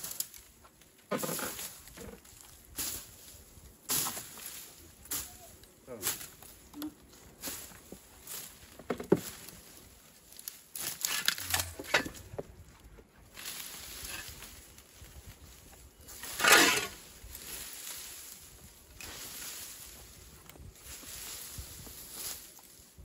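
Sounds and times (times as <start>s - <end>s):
hand hoe chopping and scraping soil: 0.0s - 5.4s, 7.4s - 12.7s, 13.4s - 15.1s, 15.7s - 22.7s
leaves rustling and crackling: 0.0s - 23.0s.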